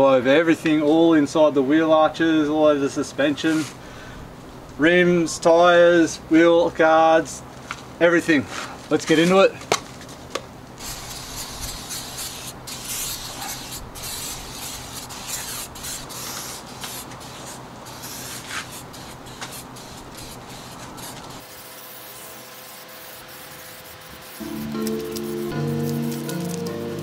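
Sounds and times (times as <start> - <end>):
aerosol can spraying: 10.8 - 27.0.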